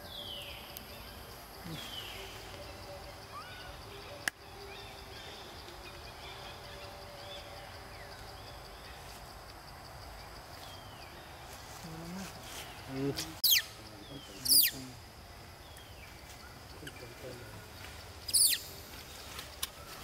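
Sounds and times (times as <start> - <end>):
high-pitched insect drone: 0.0 - 9.6, 10.4 - 19.6
bird chirps: 12.7 - 14.9, 15.6 - 20.0.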